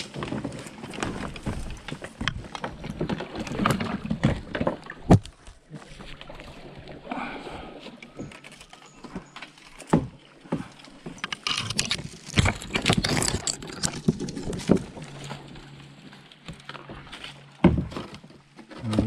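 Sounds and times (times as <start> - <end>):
water swishing: 0.0 - 18.6.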